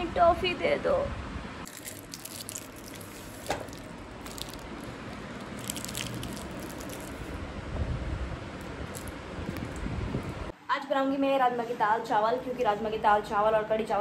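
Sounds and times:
plastic wrapper crinkling: 0:01.7 - 0:07.4, 0:08.8 - 0:09.8.

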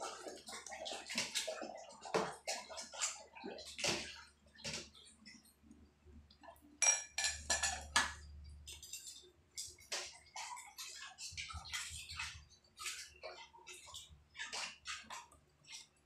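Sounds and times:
water sloshing in basin: 0:00.0 - 0:06.6, 0:07.4 - 0:16.0
plates clinking: 0:06.8 - 0:08.2.

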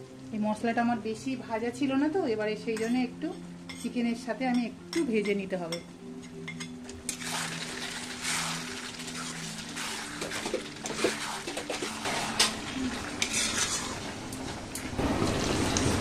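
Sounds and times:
metal spatula scraping pan: 0:06.2 - 0:14.4
chicken frying: 0:06.9 - 0:16.0.

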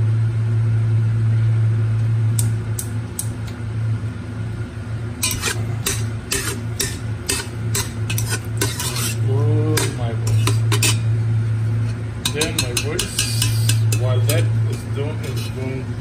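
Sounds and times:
steady low hum: 0:00.0 - 0:16.0
utensil scraping a pan: 0:05.2 - 0:11.1, 0:11.8 - 0:15.8.

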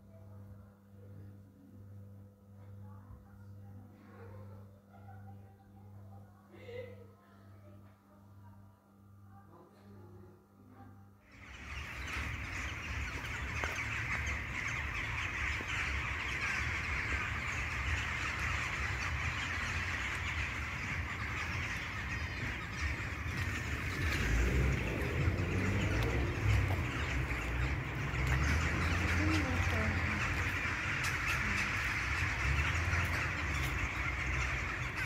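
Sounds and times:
flock of birds chirping: 0:11.3 - 0:35.0
low rumble: 0:11.6 - 0:35.0.

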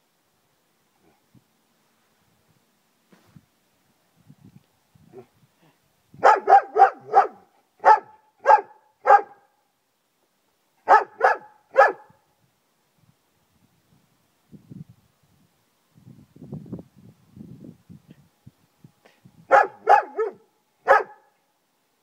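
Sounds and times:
dog barking loudly: 0:06.2 - 0:09.5, 0:10.8 - 0:12.1, 0:19.5 - 0:21.3.

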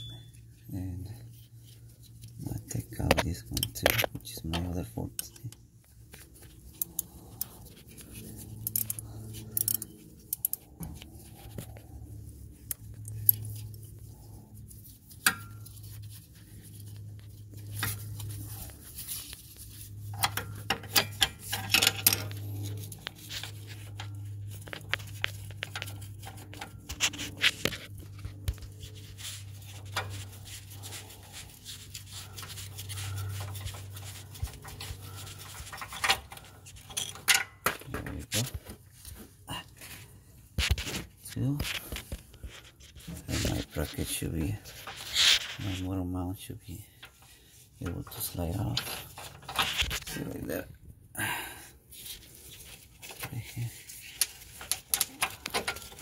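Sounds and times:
steady low hum: 0:00.0 - 0:56.0
wrench and bolt clinking: 0:35.8 - 0:37.6.

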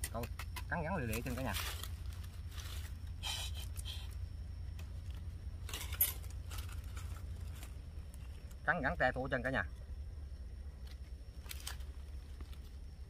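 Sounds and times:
scraping and clinking handling: 0:05.6 - 0:07.8.

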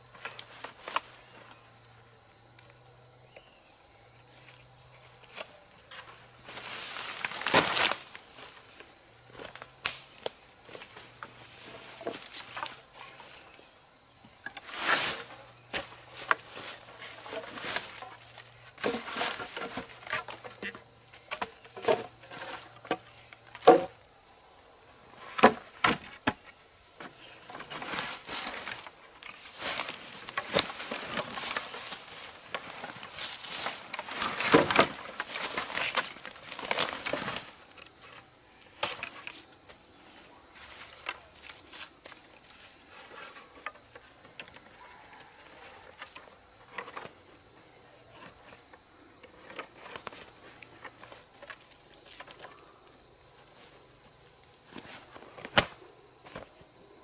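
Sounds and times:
poles scraping through leaves: 0:04.3 - 0:08.8, 0:14.6 - 0:20.6, 0:27.2 - 0:39.4
wooden poles knocking together: 0:15.7 - 0:24.0, 0:25.2 - 0:39.4.

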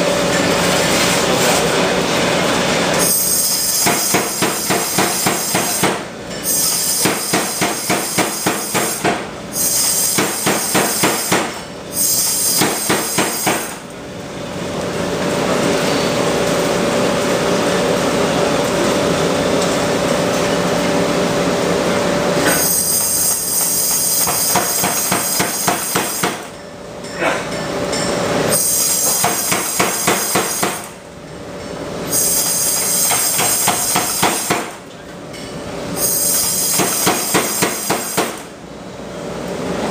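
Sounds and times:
power hammer striking hot steel: 0:03.0 - 0:13.9, 0:22.4 - 0:31.0, 0:32.2 - 0:34.9, 0:36.1 - 0:38.5.

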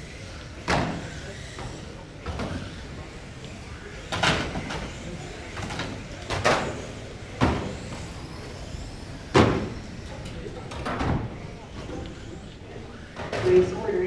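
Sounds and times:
loud noises from rc cars: 0:00.0 - 0:14.0.

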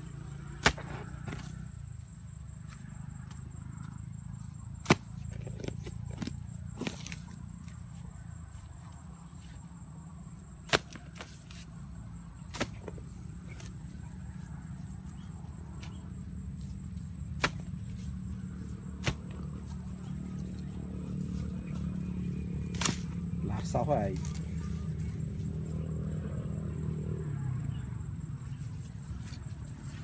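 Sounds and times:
hoe chopping into soil: 0:00.5 - 0:01.6, 0:04.8 - 0:07.4, 0:10.6 - 0:11.6, 0:12.4 - 0:13.8, 0:17.3 - 0:18.2, 0:18.9 - 0:19.5, 0:22.7 - 0:23.2.

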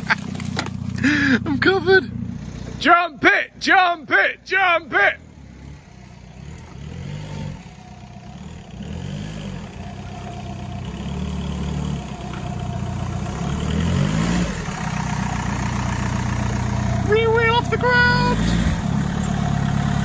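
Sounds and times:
car engine revving: 0:00.0 - 0:20.0.

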